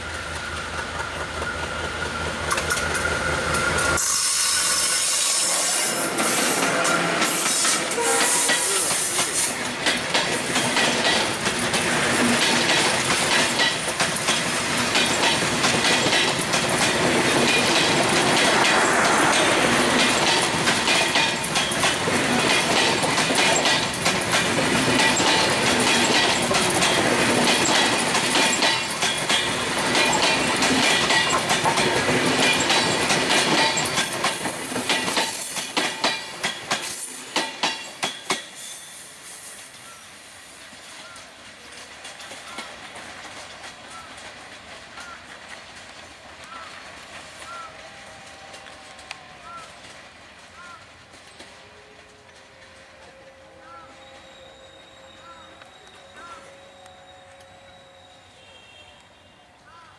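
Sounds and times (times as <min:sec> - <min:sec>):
train wheels clattering over joints: 0:00.0 - 0:38.9.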